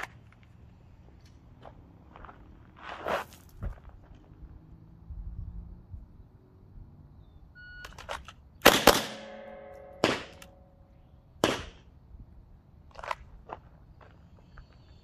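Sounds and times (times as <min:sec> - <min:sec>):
pistol shots: 0:08.6 - 0:10.5, 0:11.4 - 0:11.9.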